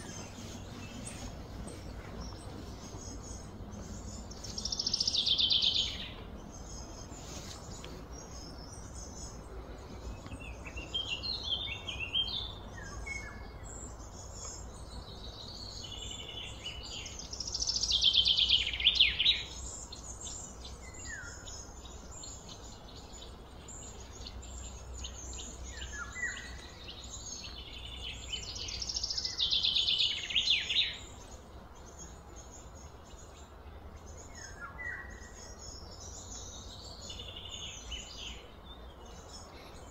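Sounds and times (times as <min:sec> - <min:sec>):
steady low rumble: 0:00.0 - 0:17.4
birds chirping: 0:00.0 - 0:39.9.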